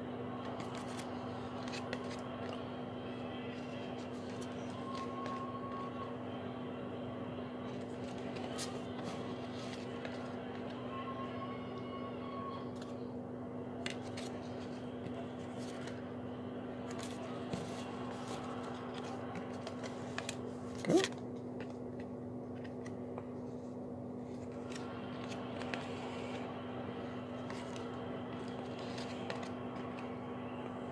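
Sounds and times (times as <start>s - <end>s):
cards clicking and sliding: 0.4s - 2.6s, 7.7s - 10.8s, 13.8s - 16.0s, 16.8s - 23.2s, 24.3s - 26.5s, 27.4s - 30.2s.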